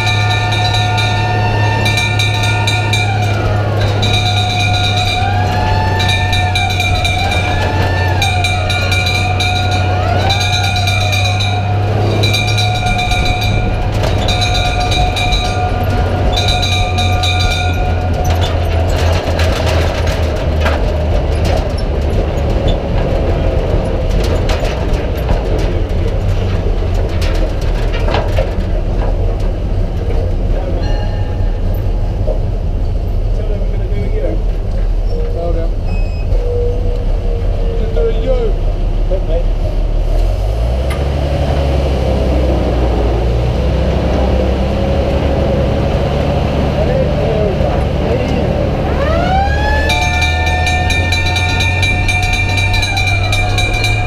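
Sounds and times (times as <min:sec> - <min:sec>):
pulsing high siren tone: 0:00.0 - 0:19.2, 0:48.7 - 0:54.0
rising and falling siren tones: 0:00.0 - 0:19.8, 0:48.4 - 0:54.0
fire engine engine: 0:00.0 - 0:54.0
road noise: 0:00.0 - 0:54.0.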